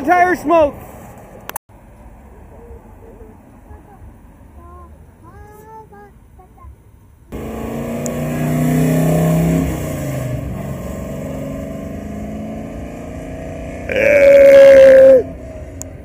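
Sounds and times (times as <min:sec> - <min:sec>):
car engine accelerating: 0:07.3 - 0:16.0.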